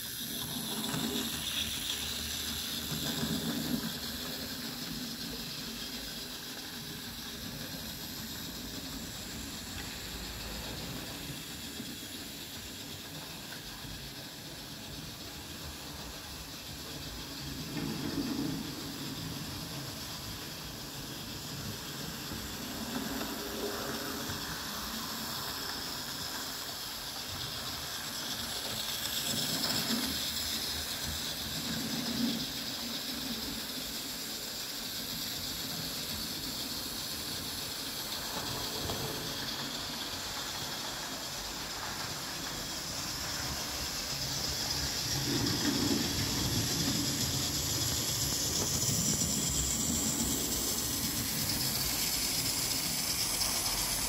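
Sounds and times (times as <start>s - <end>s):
model train whirring on track: 0.0s - 54.0s.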